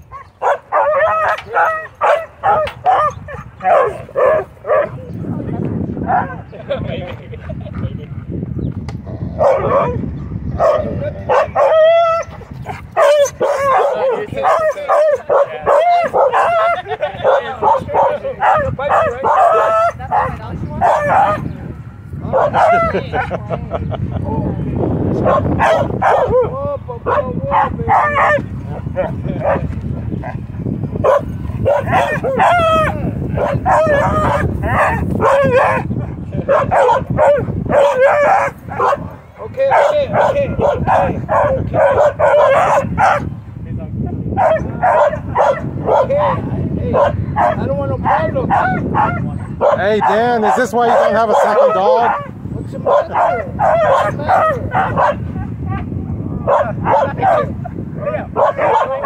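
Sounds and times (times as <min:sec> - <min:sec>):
dog barking: 0:00.1 - 0:05.0, 0:06.0 - 0:06.4, 0:09.4 - 0:10.0, 0:10.6 - 0:12.0, 0:13.0 - 0:21.5, 0:22.3 - 0:23.3, 0:25.2 - 0:26.4, 0:27.1 - 0:28.4, 0:29.4 - 0:29.7, 0:31.0 - 0:35.9, 0:36.5 - 0:43.3, 0:44.4 - 0:55.8, 0:56.4 - 0:59.0.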